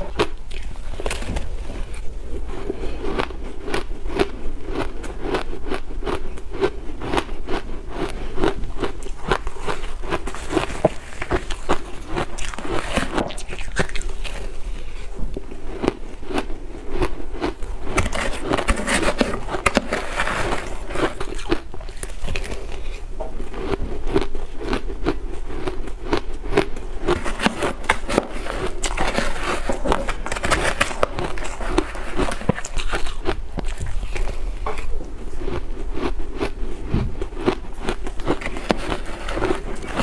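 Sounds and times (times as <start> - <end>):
ice being chewed: 0.0 - 40.0
metal spoon scraping ice: 17.9 - 22.8, 27.0 - 33.2, 38.0 - 40.0.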